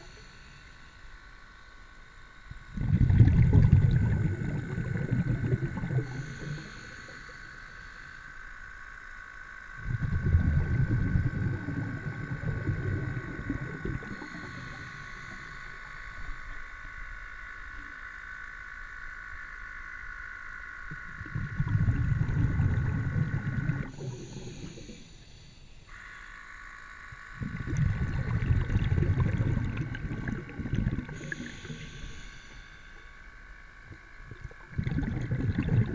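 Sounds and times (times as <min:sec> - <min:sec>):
high-pitched underwater whine: 0:00.0 - 0:35.9
low rumbling of moving water: 0:00.0 - 0:35.9.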